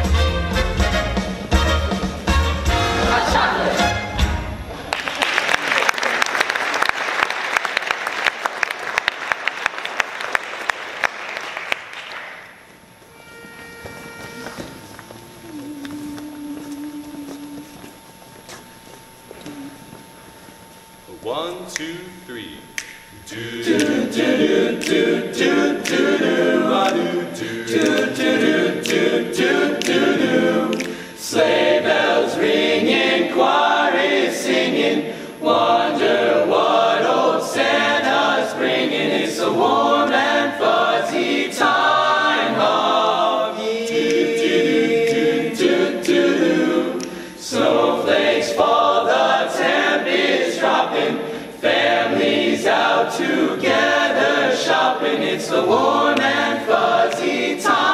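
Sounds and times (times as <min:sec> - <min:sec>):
choir singing a cappella: 0:02.6 - 0:04.6, 0:23.1 - 0:57.9.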